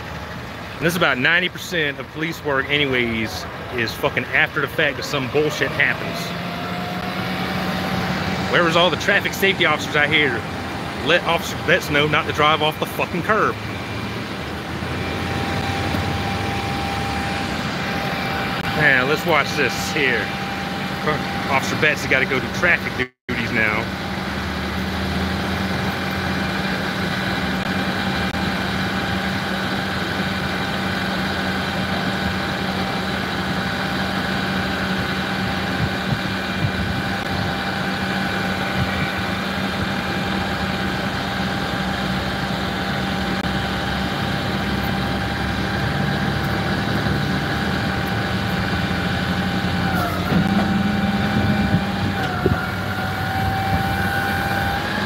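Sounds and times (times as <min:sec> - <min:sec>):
tow truck engine idling: 0:00.0 - 0:55.0
steady whine over low hum: 0:25.5 - 0:50.6.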